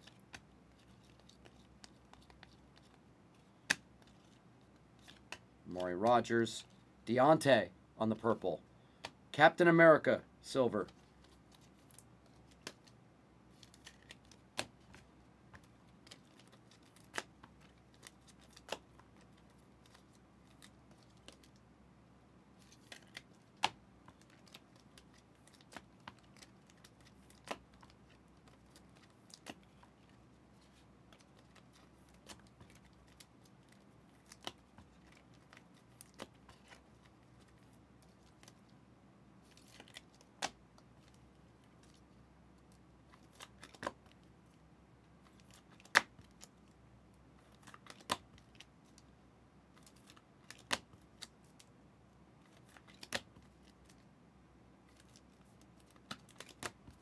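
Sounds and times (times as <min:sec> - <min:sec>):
cards clicking and snapping: 0:00.0 - 0:03.0, 0:11.2 - 0:13.0, 0:13.6 - 0:21.6, 0:22.6 - 0:29.9, 0:31.1 - 0:37.1, 0:39.5 - 0:41.2, 0:47.4 - 0:48.7, 0:49.8 - 0:51.4, 0:52.5 - 0:54.0, 0:54.9 - 0:57.0.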